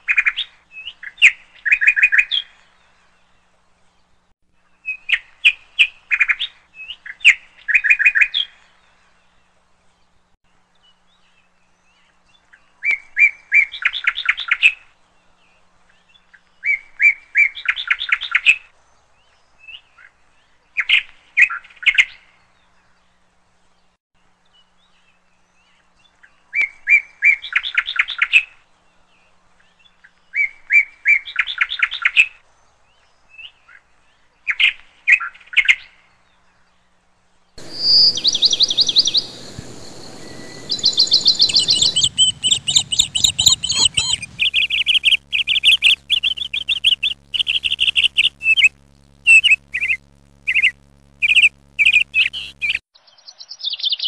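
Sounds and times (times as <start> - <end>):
steady low hum: 37.6 - 52.8
small birds chirping: 37.6 - 54.0.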